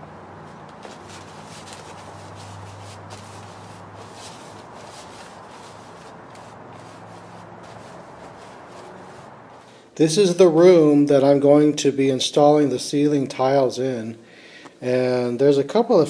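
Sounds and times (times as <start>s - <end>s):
paintbrush swishing on styrofoam: 0.7s - 9.8s.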